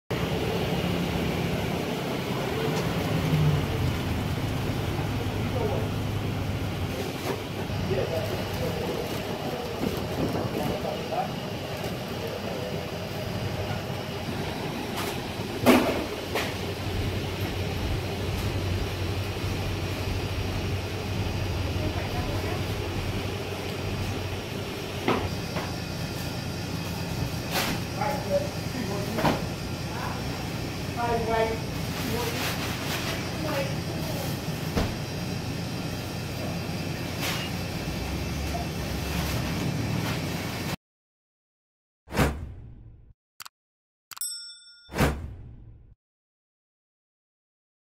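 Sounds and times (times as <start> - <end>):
low background rumble and hum: 3.6 - 40.8.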